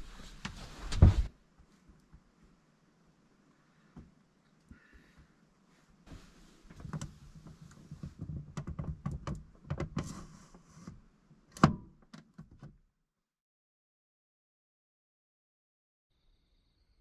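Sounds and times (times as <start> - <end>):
rustling: 0.0 - 2.6
small knocks and clicks: 6.7 - 10.1.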